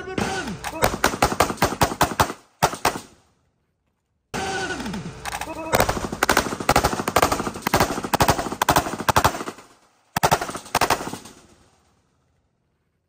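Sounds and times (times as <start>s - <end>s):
handgun shots: 0.2s - 3.1s.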